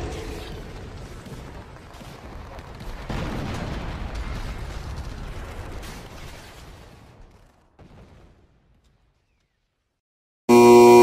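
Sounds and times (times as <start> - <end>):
explosion-like rumbling blast: 0.0 - 8.6.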